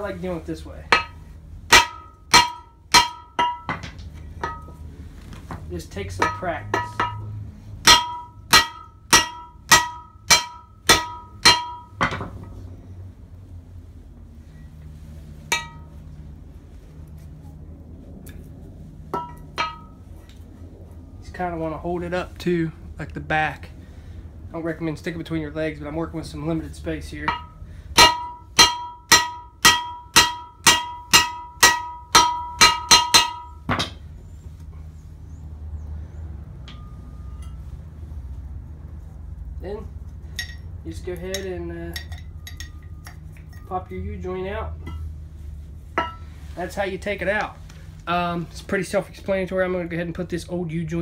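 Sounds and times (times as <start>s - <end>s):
hammer striking steel: 0.9s - 4.8s, 6.1s - 12.4s, 15.5s - 15.9s, 19.1s - 20.0s, 27.2s - 34.0s, 40.3s - 40.7s, 46.0s - 46.3s
light metal clink: 40.3s - 43.8s.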